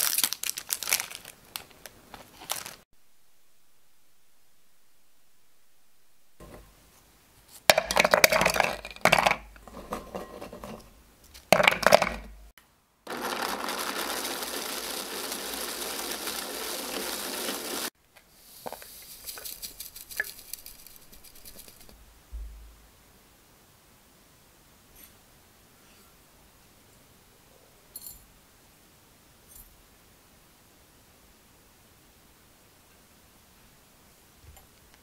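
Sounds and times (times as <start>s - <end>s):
cookies clattering into plastic bowl: 7.7s - 12.4s, 13.1s - 17.9s
food chopper grinding: 13.1s - 17.9s.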